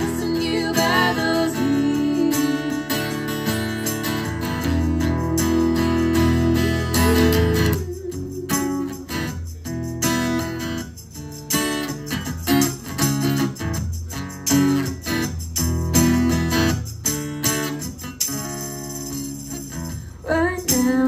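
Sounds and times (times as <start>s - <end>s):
acoustic guitar strumming chords: 0.0s - 10.6s.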